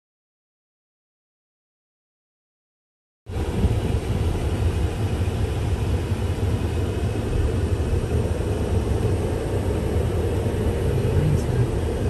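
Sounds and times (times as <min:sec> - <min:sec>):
car road and engine rumble: 0:03.3 - 0:12.0.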